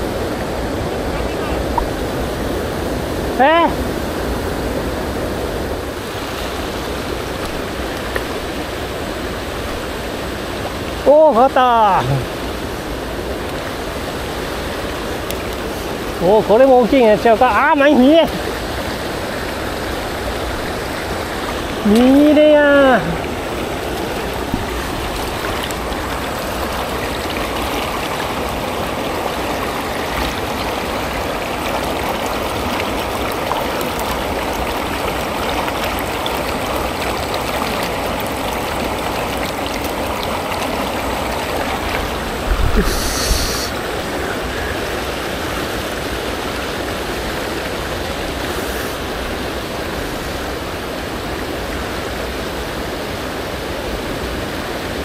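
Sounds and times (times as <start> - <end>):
river rushing over stones: 0.0 - 55.0.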